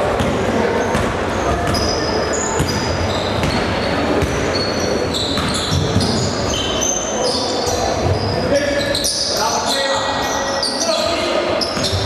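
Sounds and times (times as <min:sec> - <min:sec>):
crowd chatter: 0:00.0 - 0:12.0
sneakers squeaking on court: 0:00.0 - 0:12.0
basketball bouncing: 0:00.1 - 0:04.6, 0:05.3 - 0:06.3.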